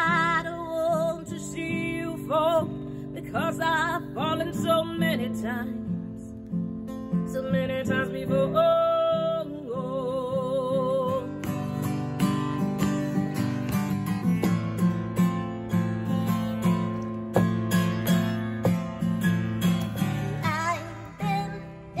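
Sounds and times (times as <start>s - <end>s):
woman singing: 0.0s - 6.3s, 7.1s - 12.0s, 20.0s - 22.0s
strummed acoustic guitar: 0.0s - 22.0s.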